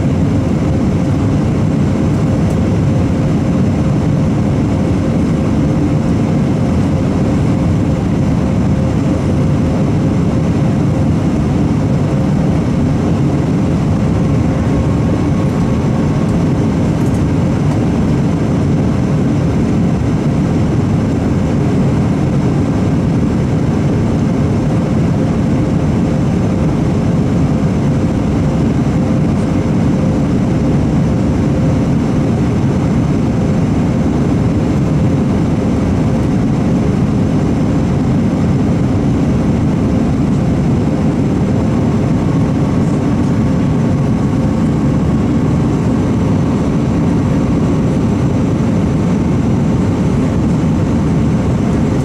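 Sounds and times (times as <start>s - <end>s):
faint steady whine: 0.0s - 52.0s
jet engines droning: 0.0s - 52.0s
rushing airflow: 0.0s - 52.0s.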